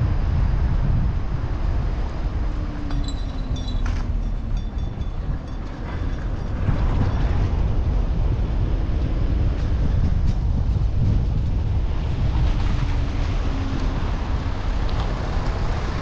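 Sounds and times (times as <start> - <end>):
car road and wind rumble: 0.0 - 16.0
faint high squeaks and clicks: 2.9 - 4.3.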